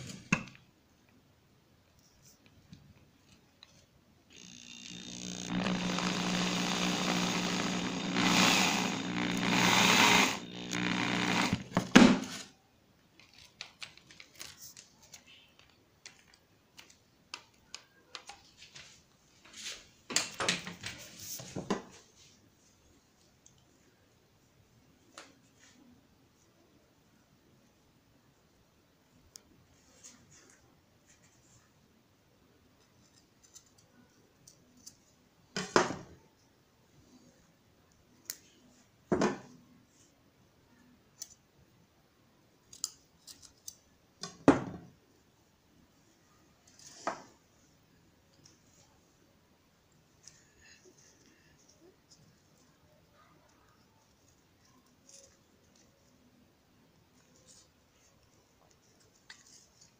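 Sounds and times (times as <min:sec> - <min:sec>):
electric drill boring: 0:04.3 - 0:11.9.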